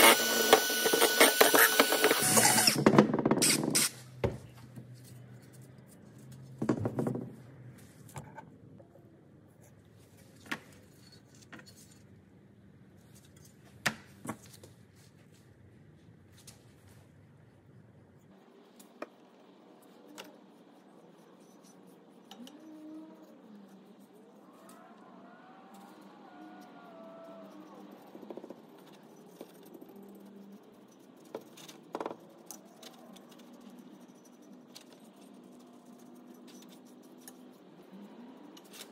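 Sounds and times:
paintbrush scrubbing metal: 19.6s - 24.5s, 26.6s - 38.9s.

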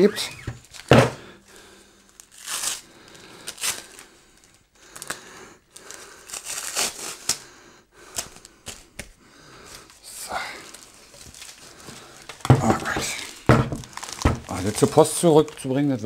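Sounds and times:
plastic wrap rustling and crinkling: 0.1s - 7.5s, 8.1s - 16.0s
adhesive tape tearing: 2.2s - 2.8s, 3.4s - 4.0s, 6.3s - 7.4s, 13.1s - 15.6s.

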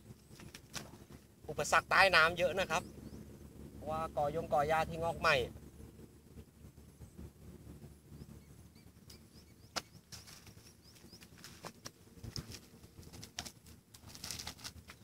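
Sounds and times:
faint high bird chirps: 8.2s - 11.7s
light clicks and rustles: 9.8s - 15.0s.

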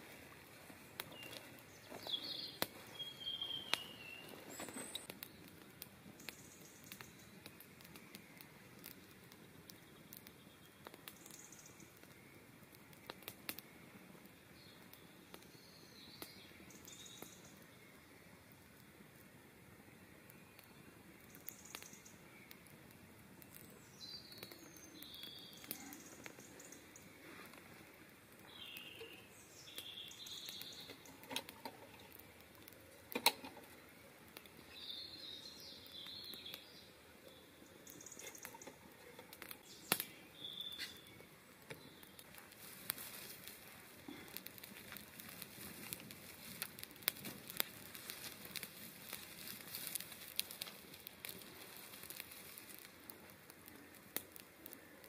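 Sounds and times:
campfire crackling: 0.0s - 55.0s
faint high chirps: 1.1s - 5.3s.

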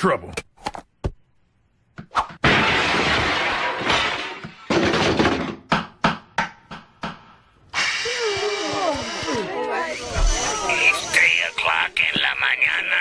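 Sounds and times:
crash of breaking objects: 2.4s - 5.7s.

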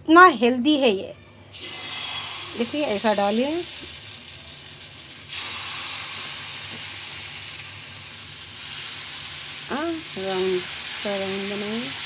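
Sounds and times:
batter sizzling on hot griddle: 1.5s - 12.0s.

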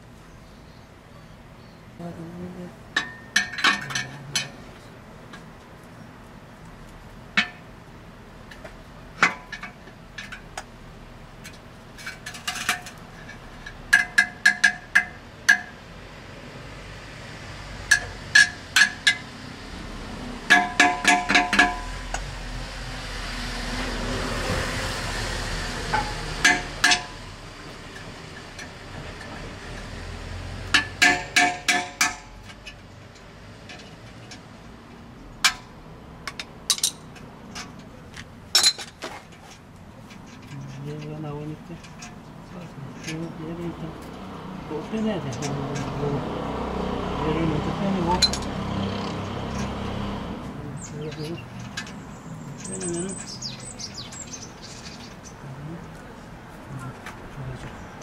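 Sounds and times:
hammer striking exhaust pipe: 13.9s - 15.8s, 17.9s - 19.3s, 20.4s - 22.3s, 25.9s - 27.3s, 30.7s - 32.4s.

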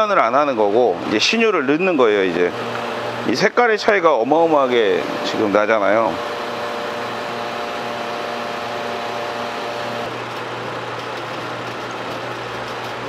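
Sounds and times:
fluid exchange machine pumping: 2.4s - 3.6s, 4.3s - 13.0s.

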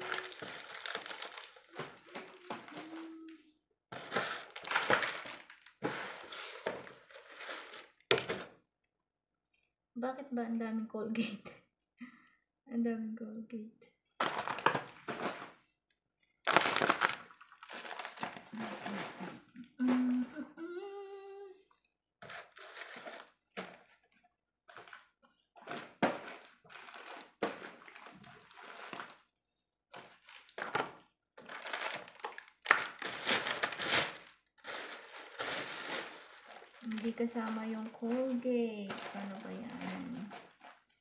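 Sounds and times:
plastic packages crinkling: 0.0s - 3.3s, 3.9s - 8.5s, 14.2s - 15.6s, 16.4s - 20.0s, 22.2s - 24.0s, 25.6s - 29.2s, 29.9s - 41.0s
person humming: 1.8s - 3.6s, 18.6s - 21.6s.

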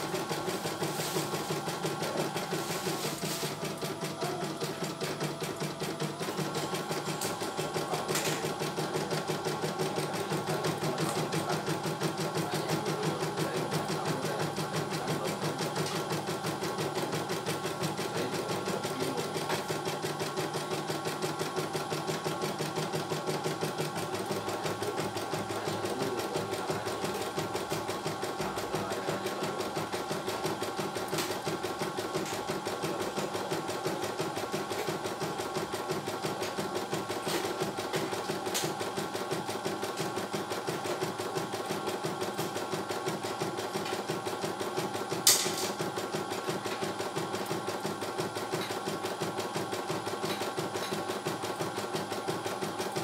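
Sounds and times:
embroidery machine stitching: 0.0s - 53.0s.

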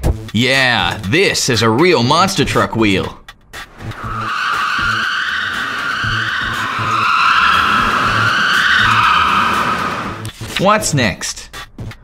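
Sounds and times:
cartoon tire squealing: 3.7s - 10.3s.

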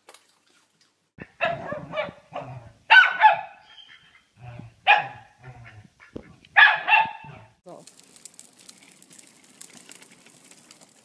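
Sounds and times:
small dog barking: 1.2s - 3.6s, 4.8s - 5.8s, 6.6s - 7.5s.

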